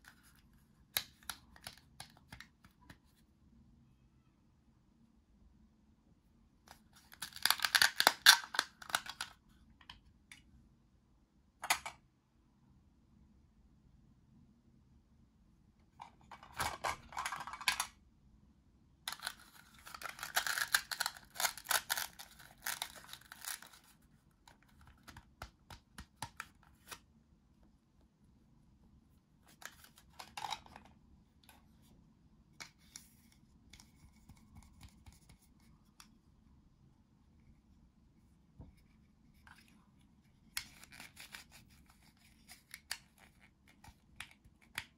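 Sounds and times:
plastic toys clicking and rustling: 7.0 - 9.4, 16.3 - 17.9, 19.1 - 23.9.

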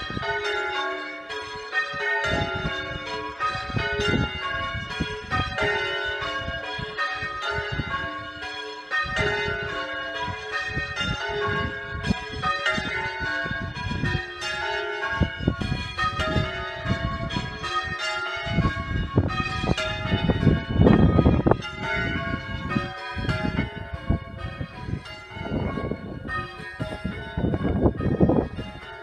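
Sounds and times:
church bells change ringing: 0.0 - 29.0.

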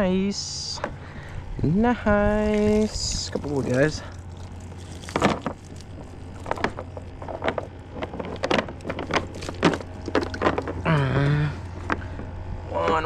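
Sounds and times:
steady low hum: 0.0 - 13.0
knocks and rattles on plastic kayak: 5.1 - 10.9.

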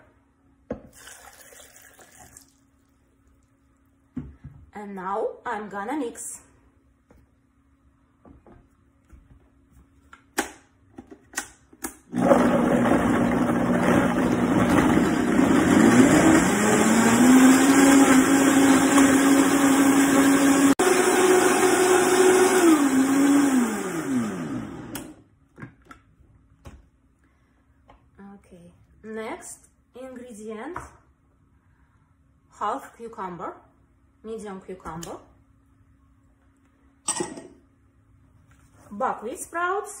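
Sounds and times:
blender motor running: 12.1 - 25.2.

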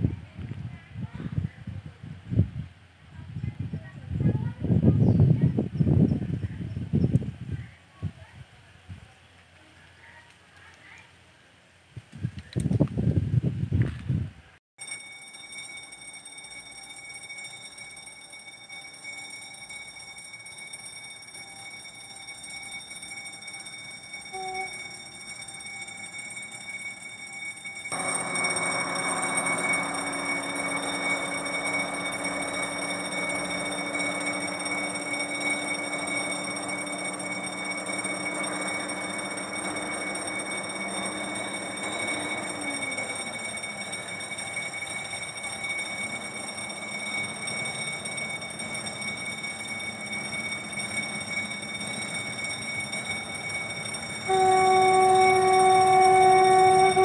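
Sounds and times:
diesel locomotive engine drone: 15.9 - 57.0.

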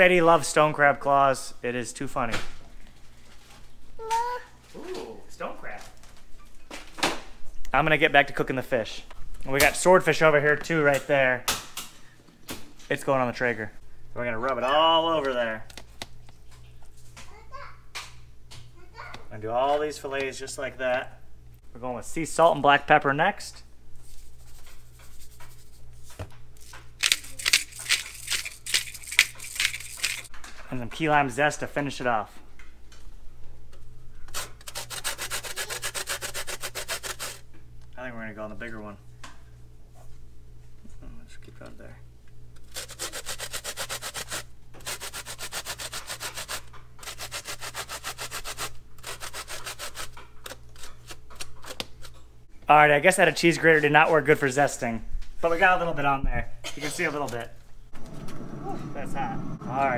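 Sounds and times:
pepper mill grinding: 26.6 - 30.3, 34.3 - 37.4, 42.6 - 52.2
lime rasping on metal grater: 34.3 - 37.4, 42.6 - 52.2.

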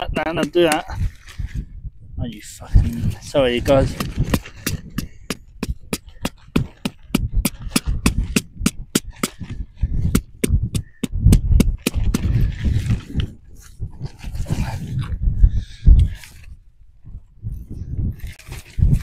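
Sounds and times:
wind buffeting microphone: 0.0 - 19.0
tent peg being hammered: 3.9 - 9.5.

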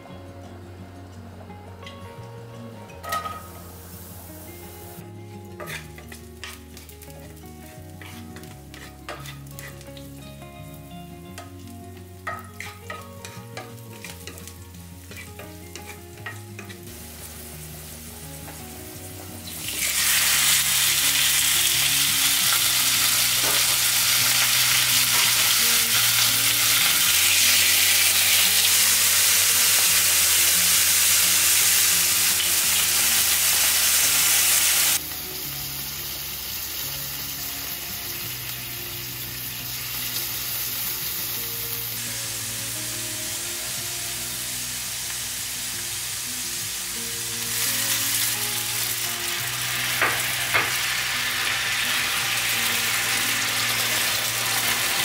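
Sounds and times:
loud steady sizzle: 0.0 - 55.0
garlic frying in oil: 4.0 - 10.8, 11.4 - 43.7, 44.3 - 55.0.

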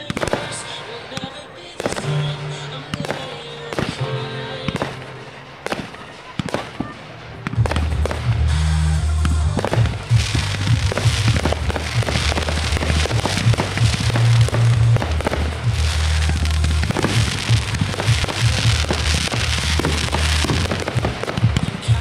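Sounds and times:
fireworks bursting and crackling: 0.0 - 22.0
music with heavy bass line: 7.2 - 22.0.

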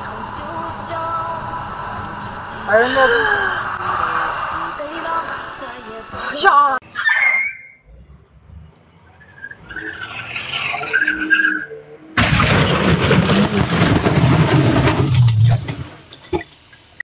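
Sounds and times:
car crashing through fence: 12.2 - 16.1.

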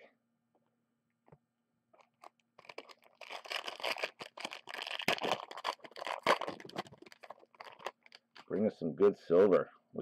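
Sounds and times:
plastic wrapper crinkling and tearing: 2.0 - 8.6.

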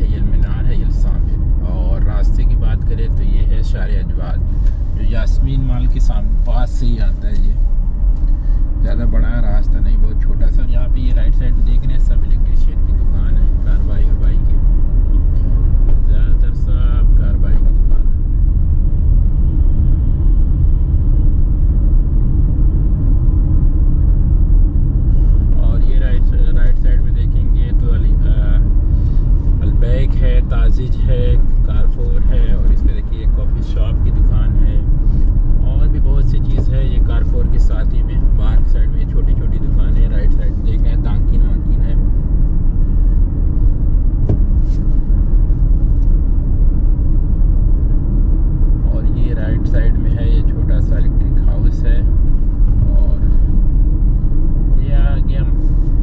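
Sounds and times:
car interior road and engine noise: 0.0 - 56.0.

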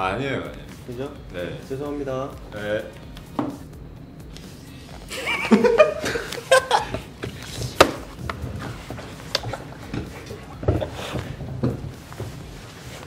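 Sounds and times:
young men laughing: 5.1 - 7.2, 9.1 - 11.6.

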